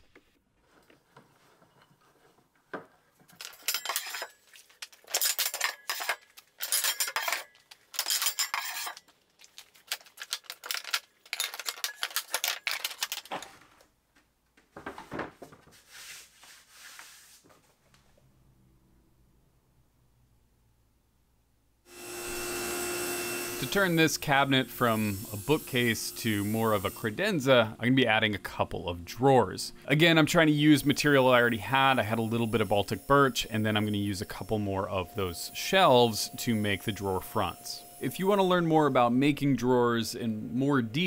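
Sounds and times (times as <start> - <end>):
metal clamps clinking and rattling: 3.3 - 9.1, 9.9 - 13.4.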